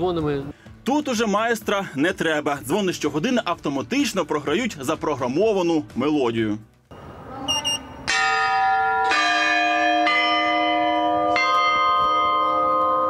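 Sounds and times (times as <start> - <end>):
short high electronic beeps: 7.5 - 8.0
chime bells ringing: 7.9 - 13.0.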